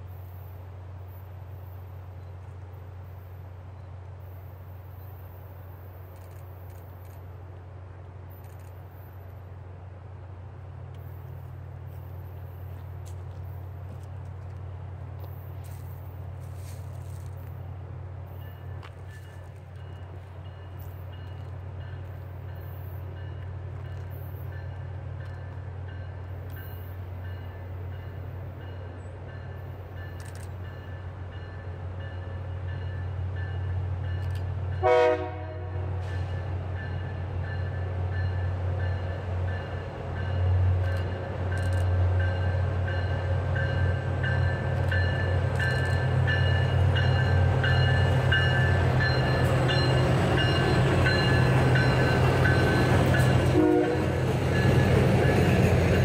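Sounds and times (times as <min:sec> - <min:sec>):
locomotive engine rumble: 0:00.6 - 0:56.0
locomotive horn blasts: 0:34.8 - 0:36.1, 0:52.8 - 0:54.3.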